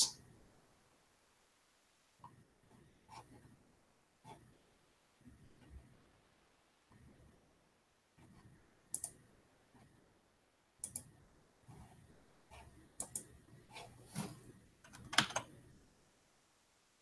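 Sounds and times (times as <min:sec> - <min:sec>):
mouse and keyboard clicks: 0:08.9 - 0:09.2, 0:10.8 - 0:11.1, 0:13.0 - 0:13.3, 0:14.8 - 0:15.5
soft rustling: 0:13.7 - 0:14.6.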